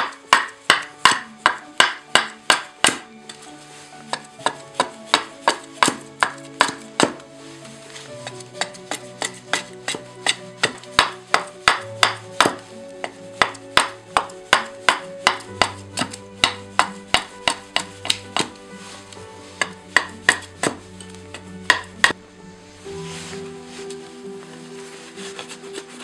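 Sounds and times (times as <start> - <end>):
hatchet chopping a branch: 0.0 - 3.0
background music: 0.0 - 26.0.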